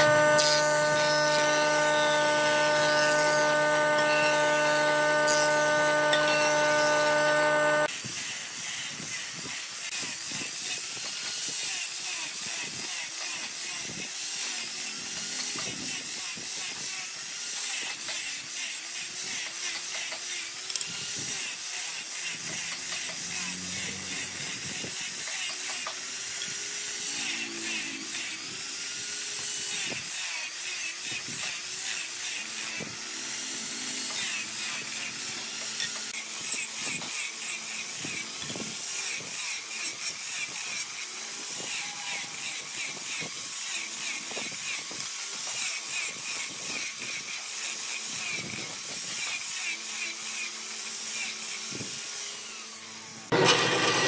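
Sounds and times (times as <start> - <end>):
steady machine hum: 0.0 - 7.9
angle grinder sanding wood: 0.0 - 54.0.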